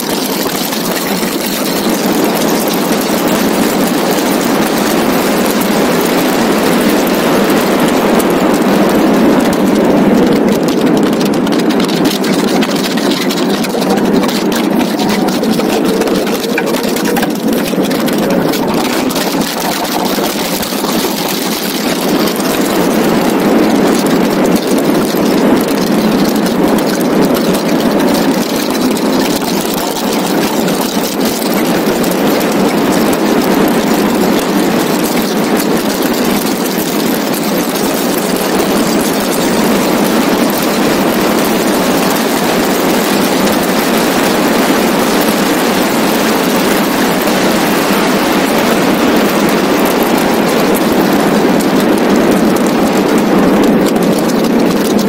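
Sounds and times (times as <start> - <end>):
car engine running hard: 0.0 - 55.0
wind rush on microphone: 0.0 - 55.0.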